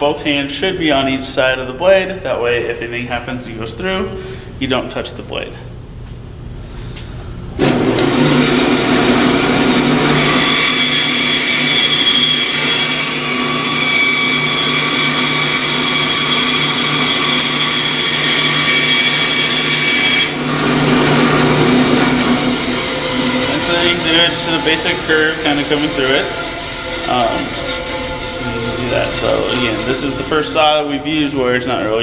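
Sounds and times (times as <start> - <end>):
band saw cutting wood: 7.7 - 32.0.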